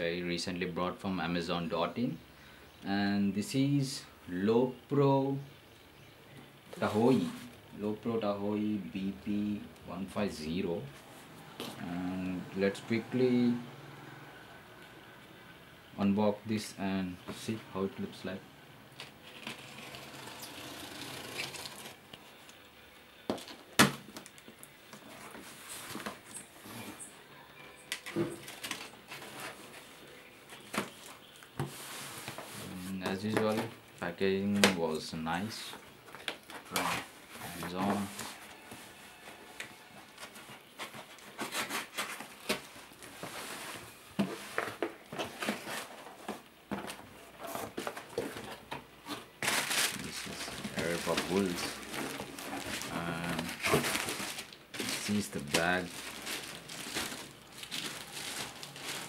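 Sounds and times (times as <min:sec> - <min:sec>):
packing tape pulled off cardboard: 0:19.0 - 0:22.0, 0:39.6 - 0:46.4
cardboard rubbing and scraping: 0:40.2 - 0:42.4, 0:43.1 - 0:46.4, 0:47.4 - 0:59.0.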